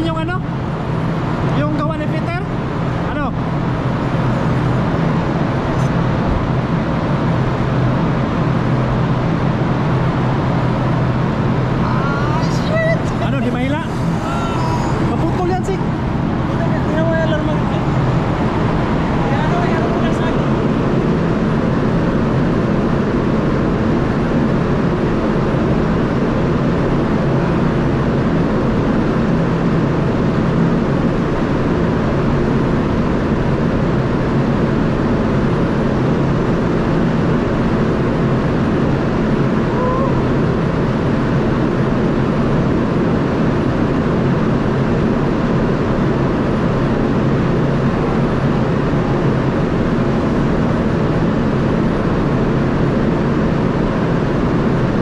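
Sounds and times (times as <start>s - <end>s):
ship machinery droning: 9.6s - 23.9s.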